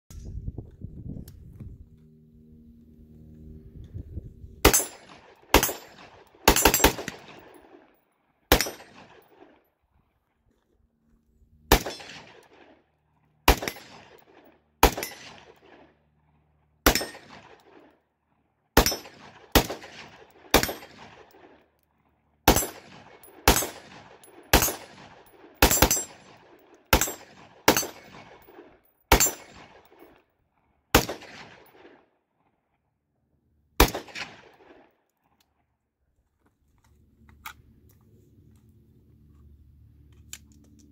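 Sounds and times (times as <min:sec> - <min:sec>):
rifle shots with echo: 0:04.6 - 0:09.6, 0:11.7 - 0:12.8, 0:13.4 - 0:16.0, 0:16.8 - 0:18.0, 0:18.8 - 0:21.6, 0:22.4 - 0:30.1, 0:30.9 - 0:32.1, 0:33.8 - 0:34.9.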